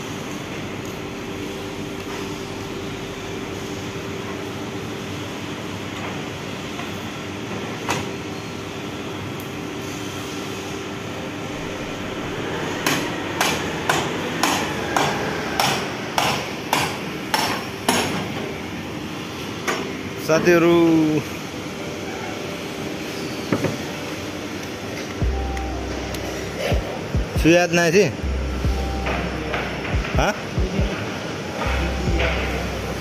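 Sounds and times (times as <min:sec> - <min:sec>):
steady hum: 0:00.0 - 0:33.0
hammer strikes: 0:12.8 - 0:18.4, 0:28.6 - 0:31.0, 0:31.6 - 0:33.0.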